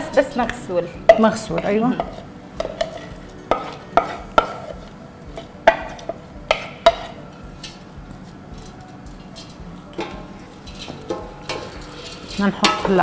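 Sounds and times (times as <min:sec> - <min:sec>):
stirring lentils: 0:01.2 - 0:13.0
spoon tapping on a pot: 0:05.6 - 0:07.8
spoon scraping a bowl: 0:10.5 - 0:13.0.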